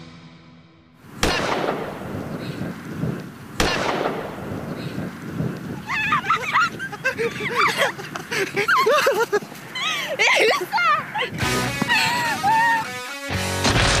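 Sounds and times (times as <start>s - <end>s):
high-pitched voices shouting: 5.8s - 7.9s, 9.8s - 11.3s, 11.9s - 13.0s.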